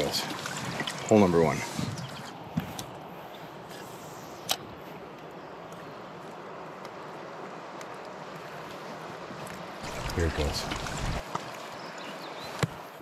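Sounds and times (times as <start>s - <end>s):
creek flowing over rocks: 0.0s - 2.4s, 5.6s - 13.0s.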